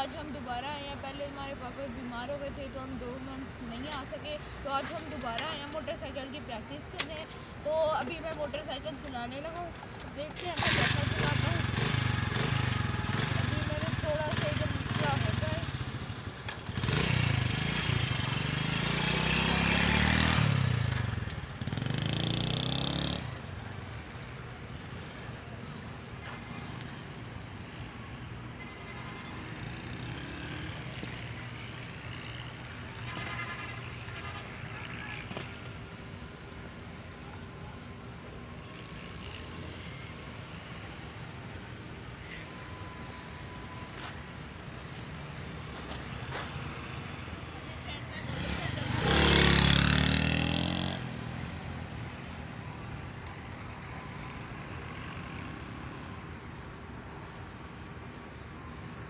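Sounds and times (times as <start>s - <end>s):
faint steady background noise: 0.0s - 59.0s
small motorcycle engine passing: 10.4s - 23.6s, 29.4s - 35.3s, 46.2s - 51.7s.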